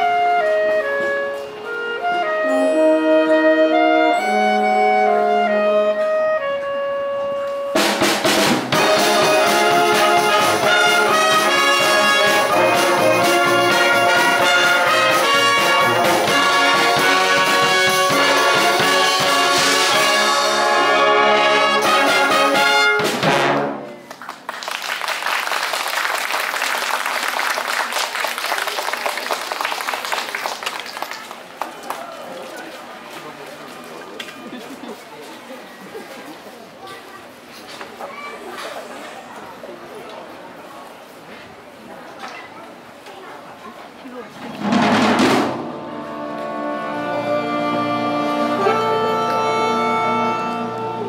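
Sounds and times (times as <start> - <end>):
wind band playing: 0.0 - 24.1, 44.6 - 51.0
audience applause: 24.0 - 33.6.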